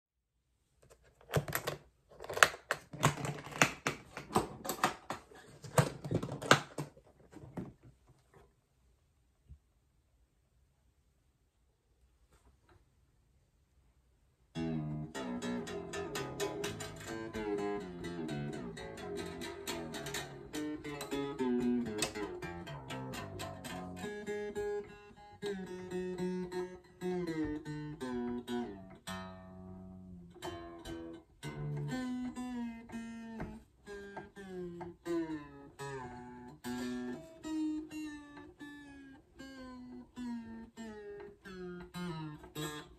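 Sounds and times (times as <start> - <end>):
fingerpicked guitar music: 14.5 - 42.9.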